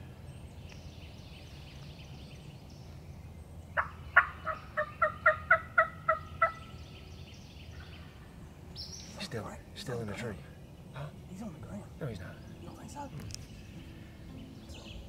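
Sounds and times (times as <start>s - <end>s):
faint songbird chatter: 0.0s - 15.0s
turkey yelping: 3.8s - 6.7s.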